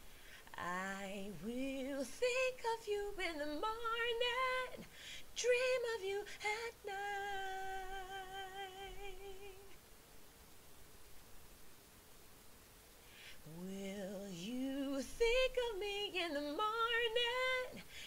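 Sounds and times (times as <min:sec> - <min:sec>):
woman singing alone: 0:00.4 - 0:09.8, 0:13.4 - 0:18.0.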